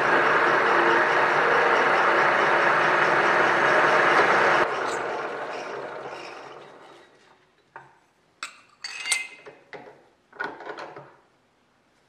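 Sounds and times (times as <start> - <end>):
drilling machine winding down: 0.0 - 6.9.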